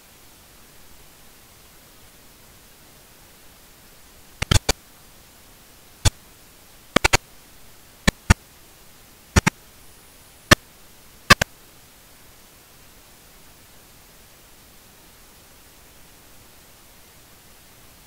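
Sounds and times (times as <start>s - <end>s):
microphone hiss: 0.0s - 18.0s
computer mouse clicking: 4.4s - 4.8s, 7.0s - 7.2s, 8.1s - 8.4s.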